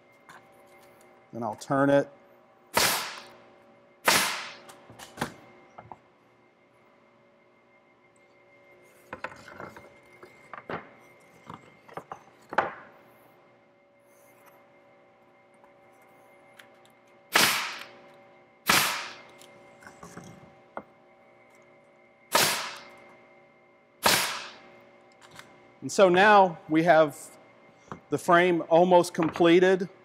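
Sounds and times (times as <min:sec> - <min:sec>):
nail gun firing: 0:02.7 - 0:03.3, 0:04.0 - 0:04.6, 0:17.3 - 0:17.9, 0:18.6 - 0:19.2, 0:22.3 - 0:22.9, 0:24.0 - 0:24.6.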